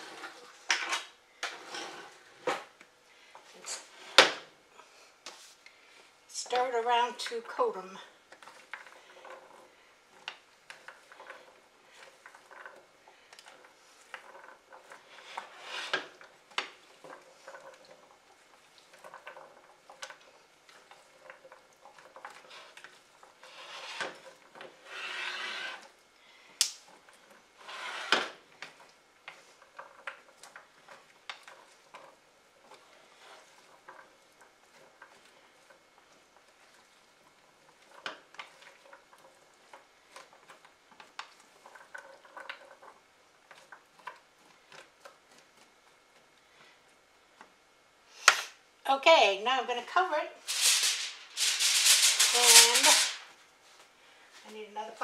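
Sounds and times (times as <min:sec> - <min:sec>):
spatula scraping glass dish: 0:24.8 - 0:25.9.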